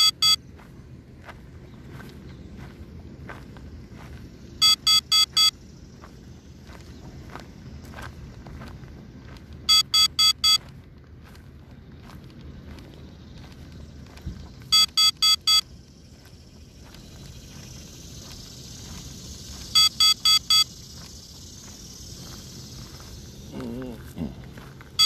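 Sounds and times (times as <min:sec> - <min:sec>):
drone warning beeps: 0:00.0 - 0:00.5, 0:04.5 - 0:07.1, 0:09.6 - 0:10.7, 0:14.6 - 0:24.0.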